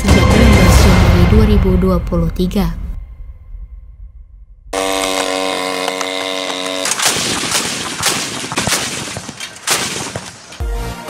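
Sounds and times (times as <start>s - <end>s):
droning tone: 3.4s - 7.2s
anti-aircraft gun firing: 5.0s - 10.7s.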